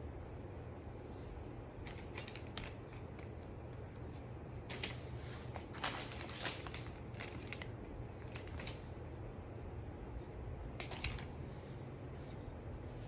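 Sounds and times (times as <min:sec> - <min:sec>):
plastic bag crinkling: 0:04.7 - 0:09.0.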